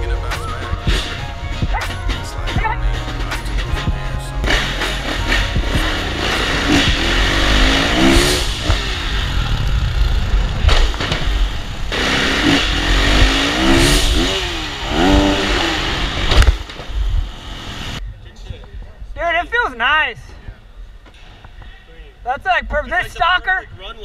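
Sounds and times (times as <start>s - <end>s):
dirt bike engine accelerating: 0.0s - 18.0s.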